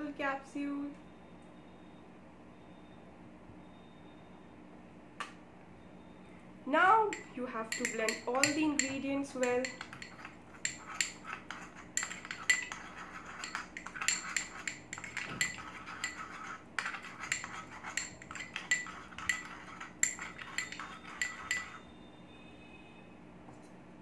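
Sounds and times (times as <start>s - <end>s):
faint steady hum: 0.0s - 24.0s
spoon clinking against glass bowl: 7.1s - 21.9s.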